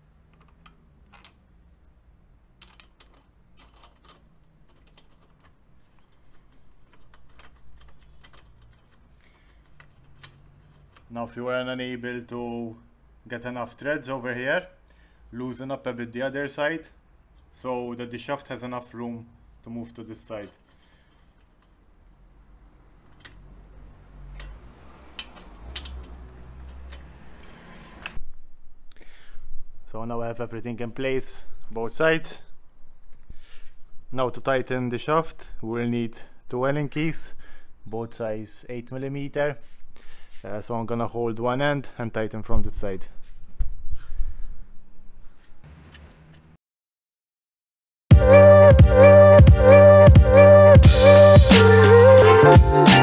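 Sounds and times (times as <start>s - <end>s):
small metallic clicks: 0.3s - 2.0s, 2.6s - 11.1s, 23.0s - 28.2s.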